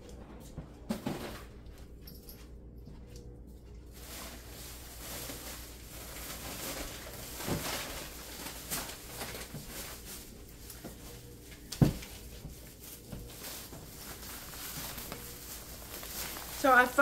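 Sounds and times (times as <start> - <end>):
shopping items rustling: 3.8 - 17.0.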